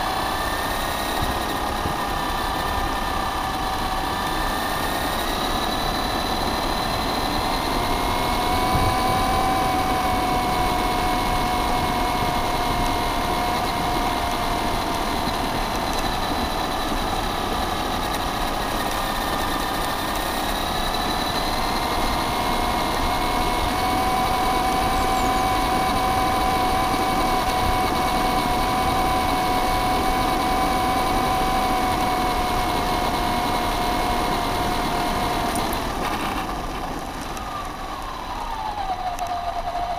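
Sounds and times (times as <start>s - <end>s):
rc car motor whining: 0.0s - 39.9s
tyres rolling over gravel: 35.5s - 38.2s.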